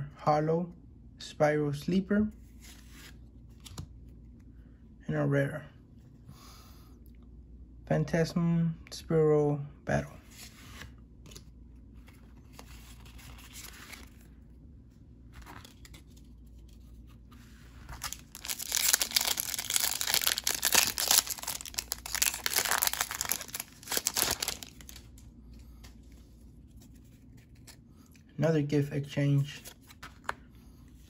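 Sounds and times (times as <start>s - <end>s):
foil wrapper crinkling and tearing: 17.9s - 25.1s.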